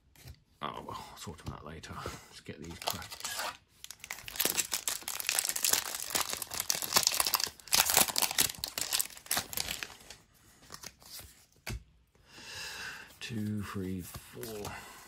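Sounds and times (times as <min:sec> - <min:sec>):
foil wrapper crinkling and tearing: 0:02.7 - 0:10.2.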